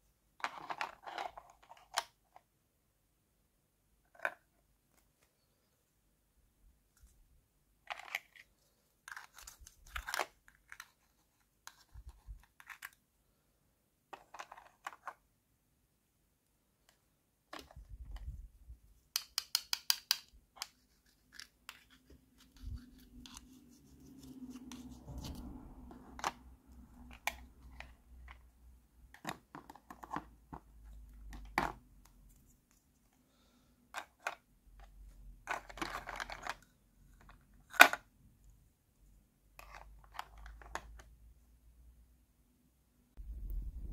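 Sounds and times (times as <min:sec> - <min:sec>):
plastic toy pieces clicking: 0:19.2 - 0:20.3
rustling scrape: 0:20.8 - 0:27.0.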